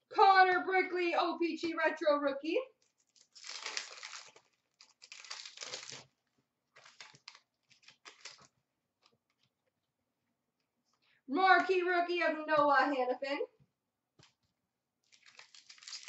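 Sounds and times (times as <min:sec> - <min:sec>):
foil wrapper tearing and crinkling: 0:02.8 - 0:08.6, 0:15.0 - 0:16.0.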